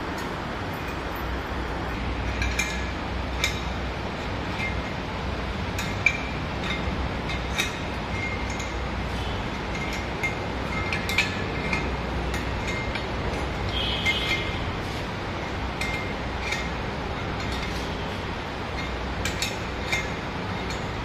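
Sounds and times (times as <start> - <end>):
steady low hum: 0.0 - 21.0
wrench clinking on metal: 2.2 - 3.7, 5.8 - 8.8, 9.6 - 14.6, 15.8 - 17.8, 18.7 - 21.0.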